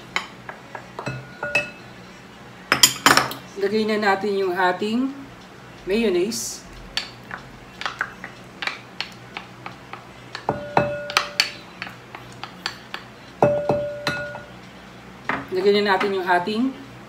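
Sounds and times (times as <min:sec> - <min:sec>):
glass bowl ringing: 0:01.0 - 0:01.8, 0:10.5 - 0:11.5, 0:13.4 - 0:14.5
spatula tapping glass bowl: 0:10.4 - 0:11.9, 0:12.6 - 0:14.5.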